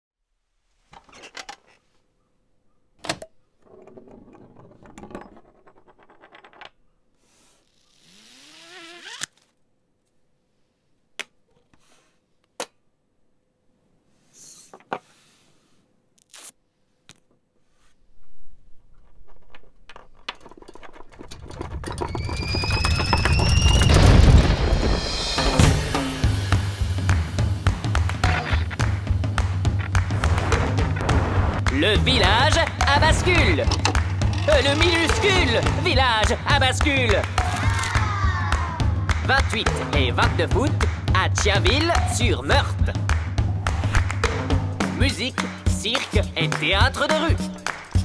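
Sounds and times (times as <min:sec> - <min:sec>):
rising whistles: 0:22.1 - 0:25.2.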